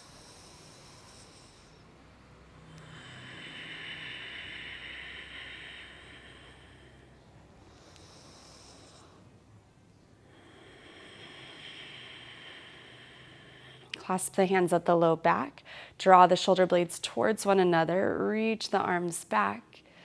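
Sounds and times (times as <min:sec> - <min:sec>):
woman breathing slowly: 0:00.0 - 0:15.0, 0:15.6 - 0:16.2, 0:19.8 - 0:20.0.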